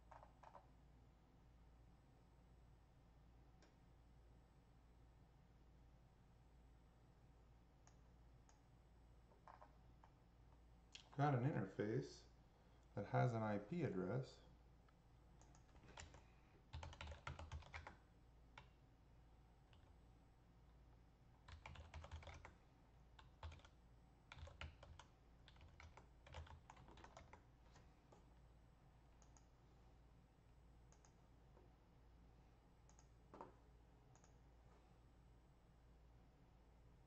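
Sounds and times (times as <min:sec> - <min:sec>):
faint keyboard typing: 0:00.0 - 0:00.8, 0:09.3 - 0:11.2, 0:14.9 - 0:18.8, 0:19.6 - 0:20.0, 0:21.4 - 0:28.4, 0:29.1 - 0:29.6, 0:30.8 - 0:31.7, 0:32.8 - 0:34.8.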